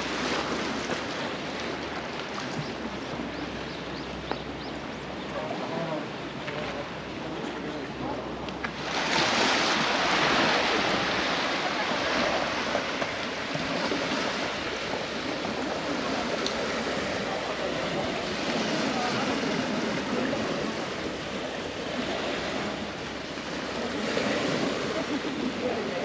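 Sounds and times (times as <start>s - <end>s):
sea waves washing onto shore: 0.0s - 26.0s.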